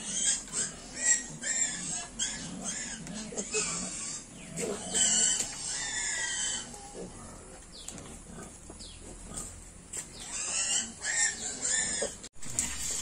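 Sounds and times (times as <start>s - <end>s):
piglets squealing: 0.0s - 7.2s, 10.2s - 12.2s.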